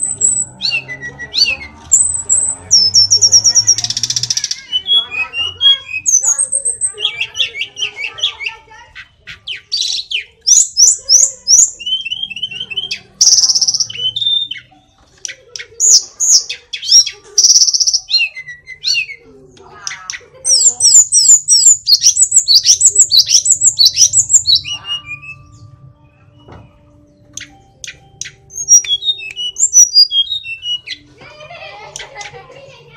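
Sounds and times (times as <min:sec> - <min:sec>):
flycatcher singing: 0:09.5 - 0:14.8, 0:20.5 - 0:31.1.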